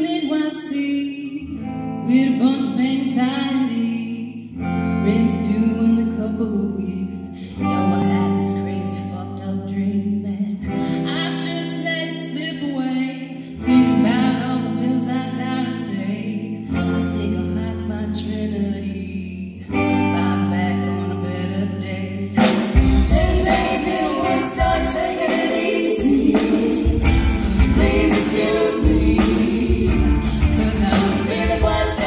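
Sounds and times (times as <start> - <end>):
electric guitar: 0.0 - 32.0
bass guitar: 13.7 - 32.0
voices singing: 19.8 - 32.0.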